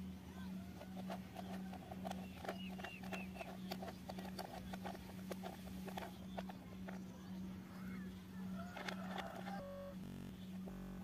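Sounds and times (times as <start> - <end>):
steady low hum: 0.0 - 11.0
toy screwdriver clicking plastic: 0.8 - 7.0, 8.6 - 9.6.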